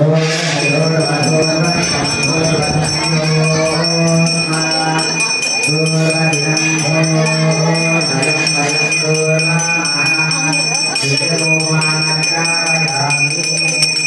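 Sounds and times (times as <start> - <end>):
low drone: 0.0 - 12.6
melodic chanting: 0.0 - 14.0
hand bell ringing: 0.3 - 14.0.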